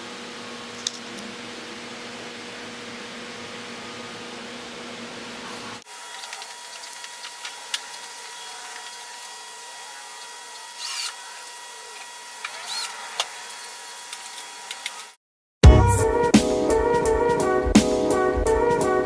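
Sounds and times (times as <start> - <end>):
power drill driving screw: 10.1 - 15.2.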